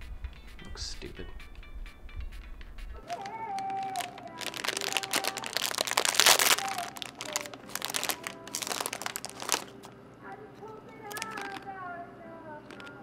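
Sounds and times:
plastic snack packet crinkling: 0:03.0 - 0:10.0, 0:10.6 - 0:11.8, 0:12.6 - 0:13.0.

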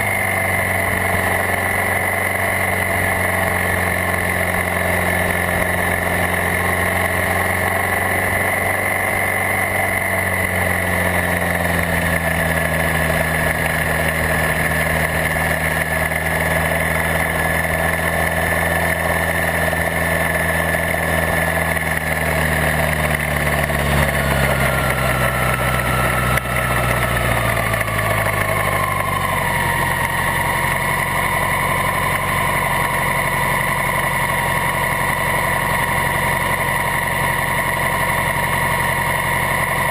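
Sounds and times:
car engine running: 0:00.0 - 0:39.9
high whine: 0:00.0 - 0:39.9.

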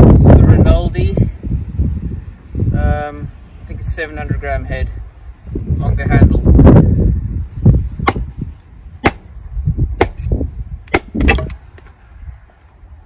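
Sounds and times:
axe splitting a log: 0:08.0 - 0:08.4, 0:09.0 - 0:09.3, 0:10.0 - 0:11.9.

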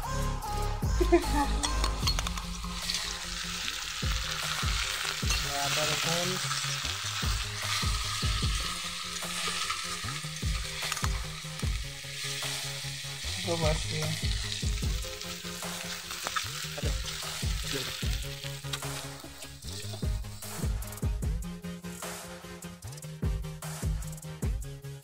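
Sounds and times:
potatoes and onions sizzling in oil: 0:01.5 - 0:21.0.

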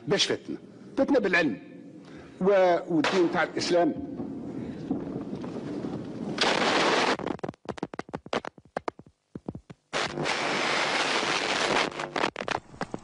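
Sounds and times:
single sharp gunshots: 0:03.0 - 0:03.5.

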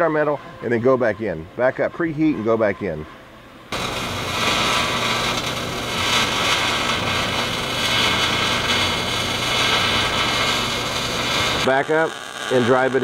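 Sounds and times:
welding arc crackling and sizzling: 0:03.7 - 0:13.0.

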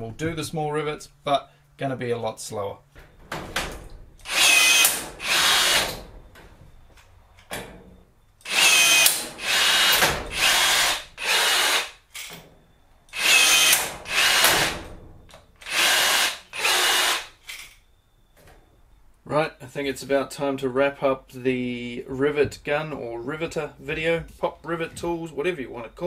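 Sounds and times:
cordless power tool whirring: 0:04.2 - 0:06.0, 0:08.4 - 0:12.0, 0:13.1 - 0:14.7, 0:15.6 - 0:17.4.

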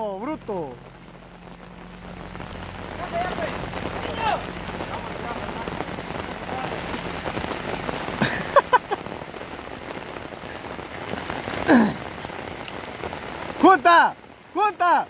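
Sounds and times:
heavy rain on road: 0:00.0 - 0:15.0
people shouting: 0:03.0 - 0:04.5.

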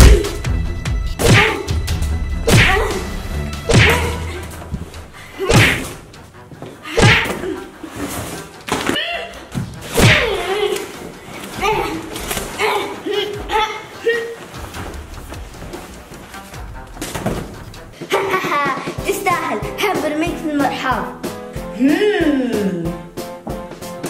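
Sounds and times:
background music: 0:00.0 - 0:24.0.

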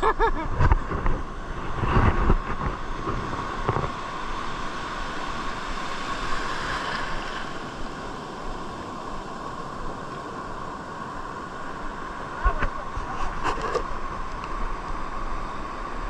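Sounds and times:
wind buffeting microphone: 0:00.0 - 0:06.2
sea waves washing in: 0:00.0 - 0:16.0.

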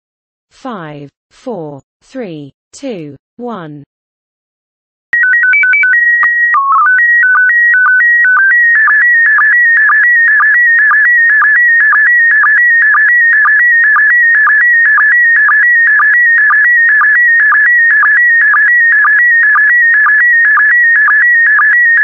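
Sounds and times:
repeating signal warble: 0:05.2 - 0:22.0.

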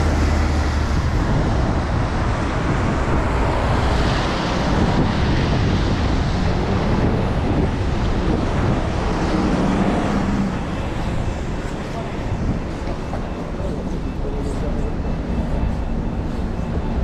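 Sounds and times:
wind noise on microphone: 0:00.0 - 0:13.4
cars and buses passing: 0:00.0 - 0:17.0.

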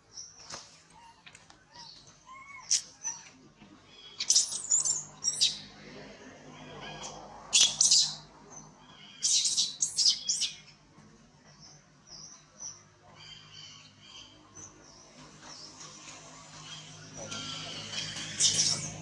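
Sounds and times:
baby monkey screaming: 0:04.2 - 0:05.6, 0:17.4 - 0:19.0.

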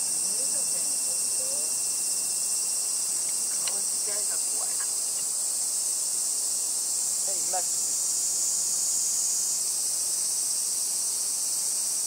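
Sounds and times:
insect chorus drone: 0:00.0 - 0:12.0.

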